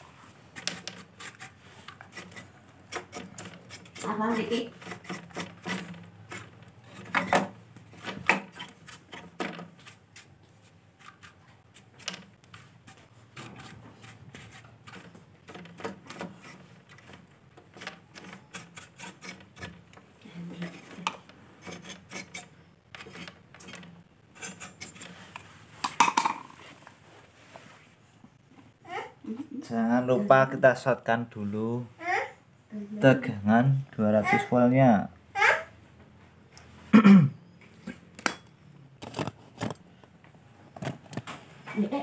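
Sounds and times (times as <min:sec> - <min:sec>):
clicks and rattles of wires handled: 0:00.6 - 0:01.2, 0:04.8 - 0:09.8, 0:14.6 - 0:26.9, 0:39.0 - 0:41.8.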